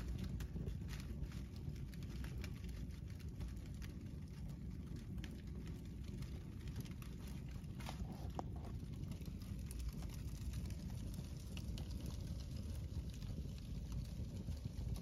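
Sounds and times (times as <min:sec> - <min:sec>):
fire crackling and popping: 0:00.0 - 0:15.0
low rumble of flames: 0:00.0 - 0:15.0.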